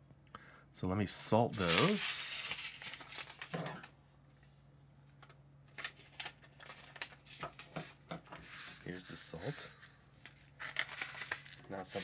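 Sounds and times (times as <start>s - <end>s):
paper packet rustling: 1.4s - 4.0s, 5.2s - 12.0s.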